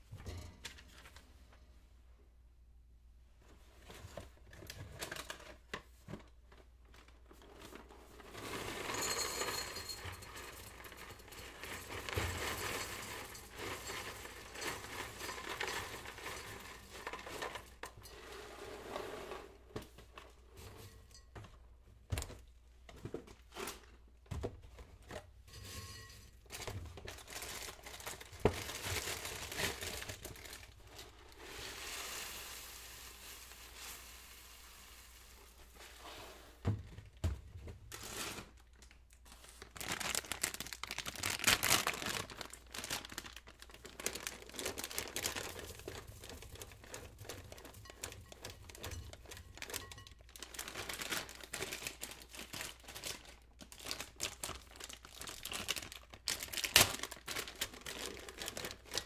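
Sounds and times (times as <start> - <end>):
crinkling and rustling: 0.0 - 1.8, 3.4 - 59.0
dishes and cutlery clinking: 25.5 - 26.4.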